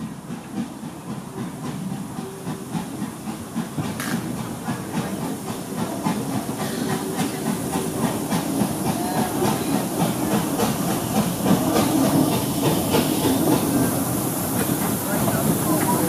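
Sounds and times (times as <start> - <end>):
coaches clicking on rails: 0.0 - 16.0
steam locomotive hissing: 0.0 - 16.0.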